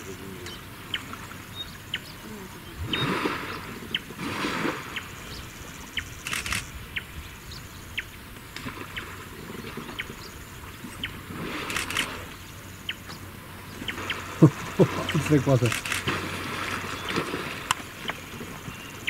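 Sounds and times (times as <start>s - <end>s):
elephants spraying water from trunks: 2.8s - 6.7s, 10.8s - 12.5s, 13.7s - 19.0s.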